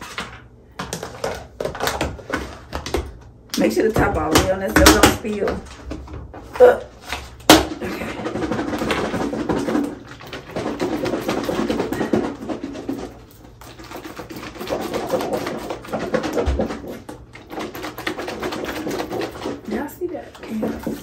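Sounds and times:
container being shaken rattling: 7.2 - 21.0.

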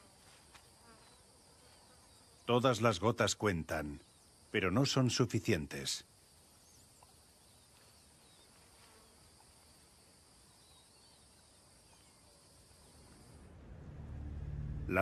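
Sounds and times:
insect buzz: 0.0 - 5.2, 5.8 - 13.5
faint bird chirps: 0.7 - 5.1, 6.3 - 13.4.

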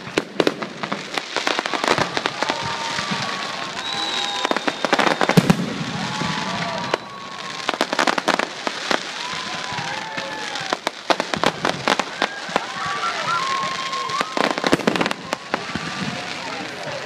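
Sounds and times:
continuous hiss of fireworks: 0.0 - 17.0
fireworks bangs and crackling: 0.0 - 17.0.

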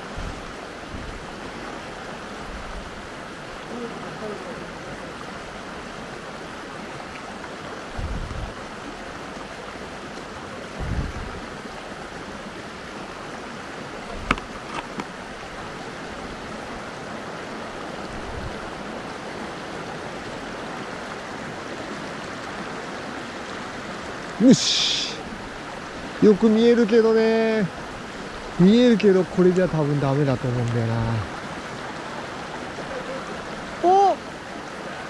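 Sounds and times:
low thumps: 0.0 - 1.3, 7.9 - 8.7, 10.8 - 11.5
stream water rushing: 0.0 - 35.0.

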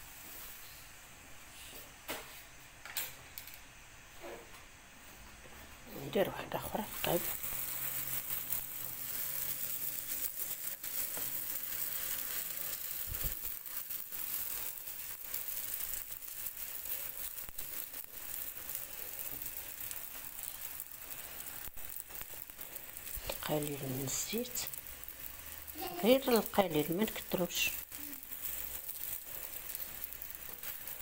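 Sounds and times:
dough sizzling in a frying pan: 0.0 - 31.0.

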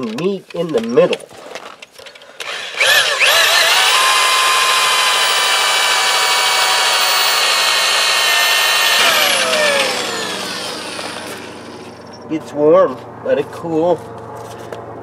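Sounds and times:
electric drill boring: 2.4 - 12.2.

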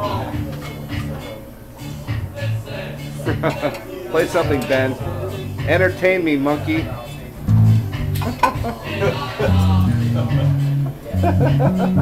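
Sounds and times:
electric bass plucked notes: 7.4 - 8.4, 9.0 - 12.0.

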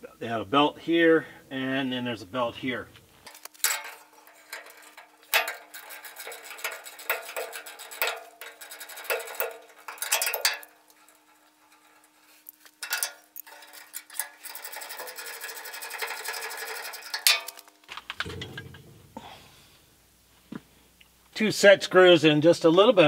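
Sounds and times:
metal tool clinking on pulley: 3.3 - 17.7.

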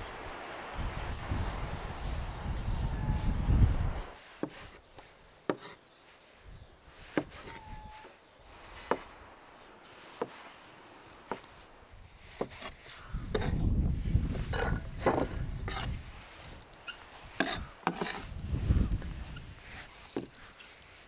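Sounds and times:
knife cutting on wooden board: 5.5 - 5.8, 17.4 - 18.2.

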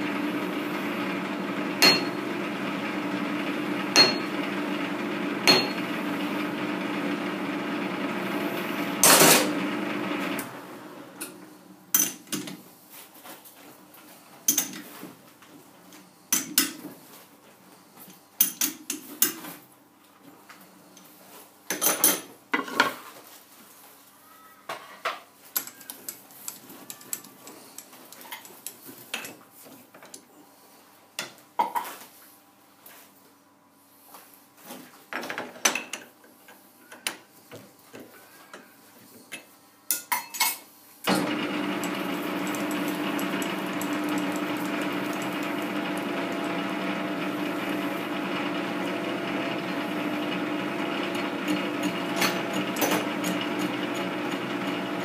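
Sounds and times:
lathe motor hum: 0.0 - 11.2, 41.1 - 55.0.

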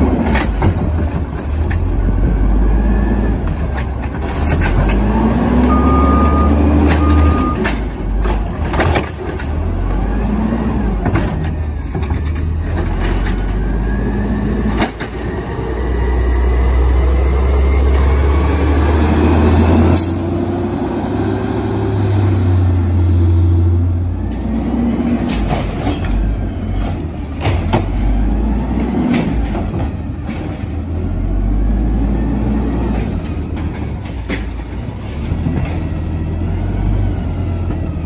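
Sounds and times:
garbage truck engine revving: 0.0 - 38.0
short beeps: 5.7 - 7.7
clanks and knocks: 11.0 - 13.6.

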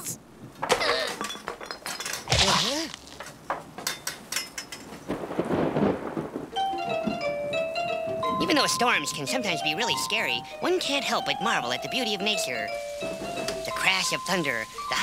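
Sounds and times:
breaking crash: 1.5 - 3.2.

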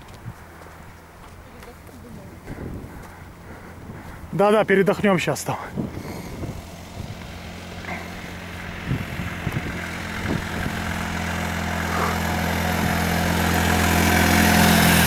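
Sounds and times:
small car engine passing by: 5.3 - 15.0.

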